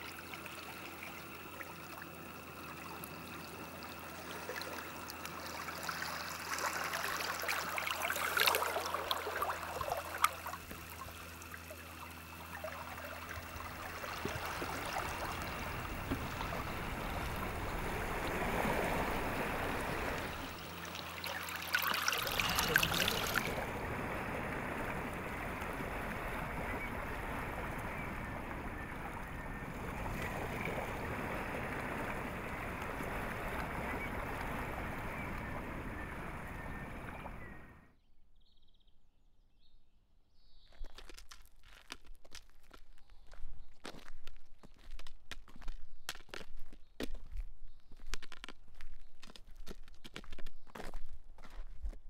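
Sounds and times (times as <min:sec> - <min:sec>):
water lapping over stones: 0:00.0 - 0:35.4.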